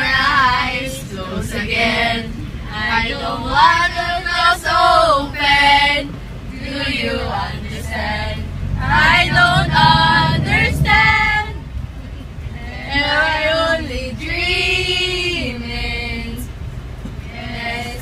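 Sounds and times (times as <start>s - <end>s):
man and woman singing together: 0.0s - 6.0s, 6.6s - 11.6s, 17.2s - 18.0s
van engine hum: 0.0s - 18.0s.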